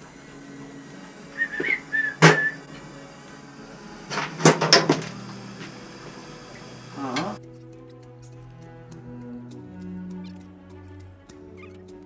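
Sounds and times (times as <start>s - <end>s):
faint low hum: 0.0s - 7.5s
wavering squeak: 0.0s - 8.0s
tools clacking and clanking: 1.6s - 3.0s, 4.1s - 7.5s.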